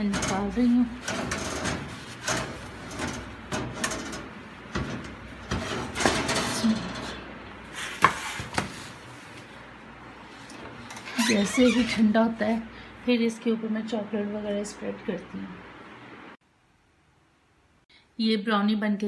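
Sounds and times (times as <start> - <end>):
baking tin scraping on oven rack: 0.0 - 9.0.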